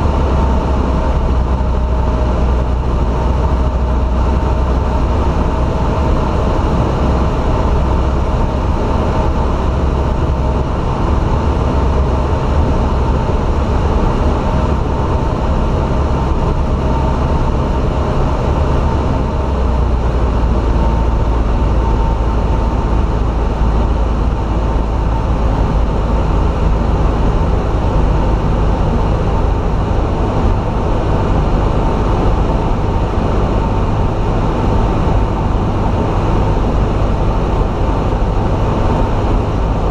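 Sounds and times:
light aircraft engine droning: 0.0 - 39.9.

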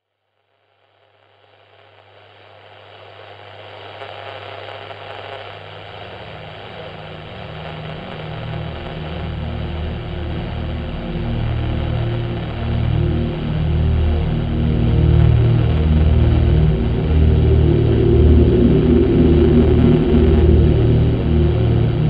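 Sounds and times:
electronic soundtrack music: 8.1 - 22.0
low pulsing bass: 8.8 - 22.0.

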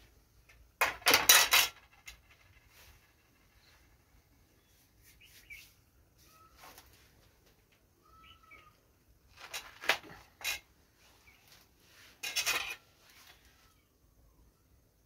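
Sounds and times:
bird chirping: 2.7 - 6.8, 8.0 - 8.8.

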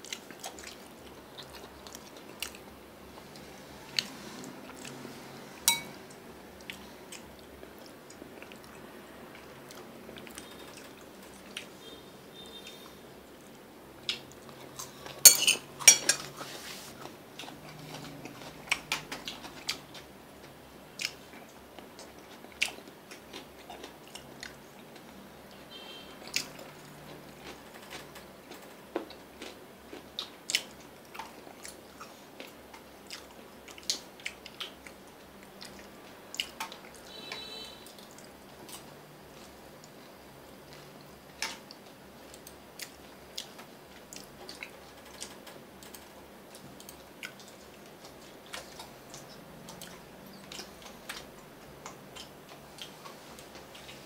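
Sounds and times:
chewing: 0.0 - 5.1, 5.7 - 12.0, 17.0 - 20.1, 21.0 - 25.2, 26.3 - 37.1, 37.8 - 40.1, 40.7 - 54.0
chopsticks clicking on plates: 5.7 - 6.0, 15.3 - 16.3.

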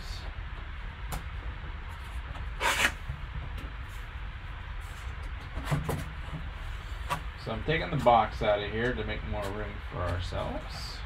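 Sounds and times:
cardboard scrape: 2.6 - 3.0.

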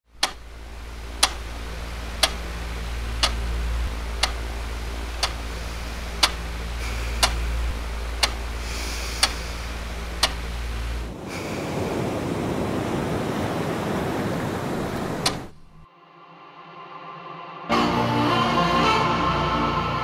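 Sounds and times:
clock ticking: 0.1 - 11.1
steady low hum: 0.1 - 15.9.

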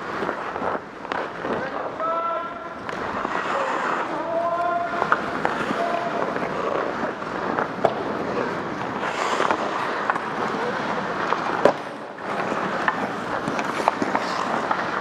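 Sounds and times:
hockey sticks and pucks clacking: 0.0 - 15.0
skates scraping ice: 0.0 - 15.0.

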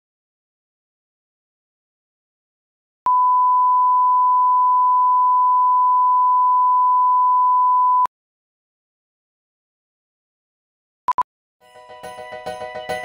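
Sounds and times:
steady reference tone beep: 3.1 - 8.1.

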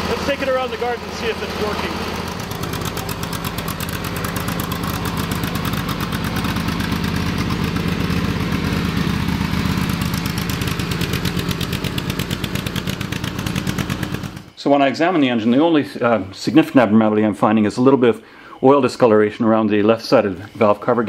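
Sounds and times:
riding mower engine running: 0.0 - 14.6.

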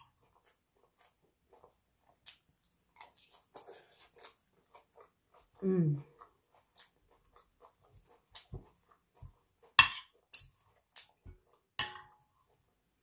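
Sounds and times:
cutlery clinking on a plate: 11.8 - 12.2.

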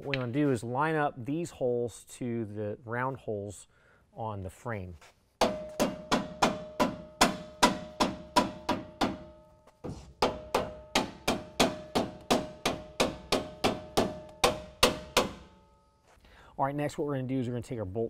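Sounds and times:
rubber mallet striking steel bracket: 5.4 - 15.6.

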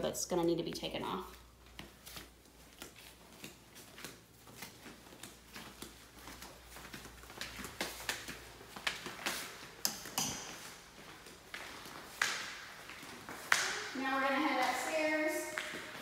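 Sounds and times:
footsteps soft taps: 0.7 - 16.0.

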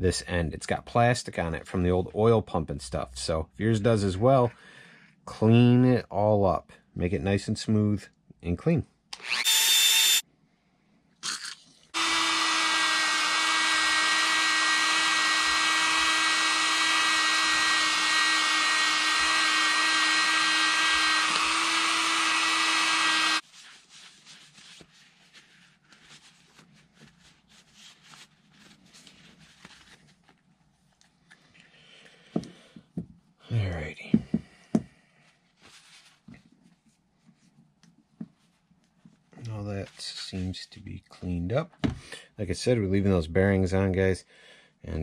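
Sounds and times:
rotary tool whining: 9.2 - 10.2, 12.0 - 23.4.

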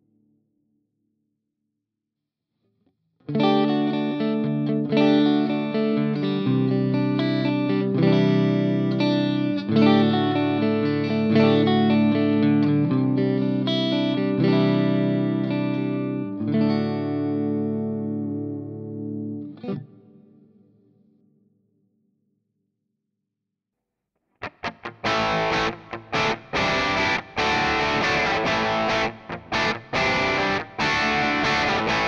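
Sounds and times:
electric guitar chords ringing: 3.3 - 20.9, 24.4 - 32.0.

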